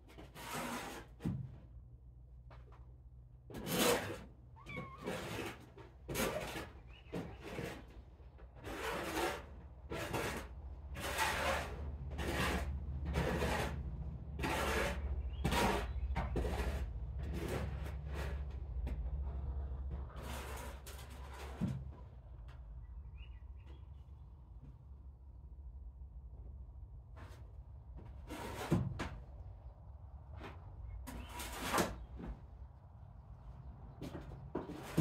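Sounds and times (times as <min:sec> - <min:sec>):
kittens meowing: 0:04.6 - 0:05.1.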